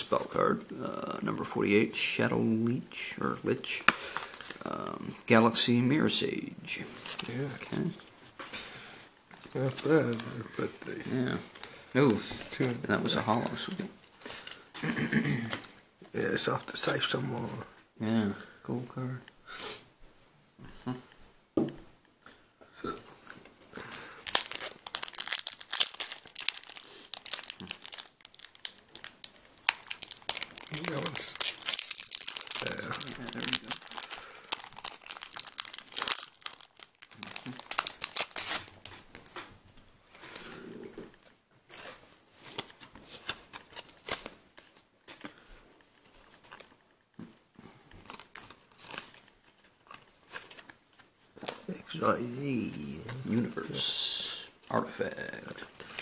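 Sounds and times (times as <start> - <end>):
foil wrapper crinkling: 23.8 - 39.4, 52.8 - 56.0.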